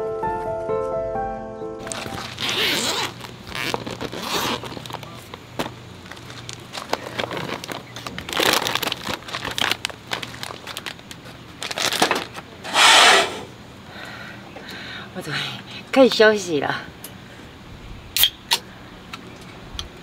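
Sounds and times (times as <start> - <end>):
cooler bag unzipping: 1.8 - 4.8, 12.7 - 13.5
plastic packets crinkling: 1.8 - 12.5.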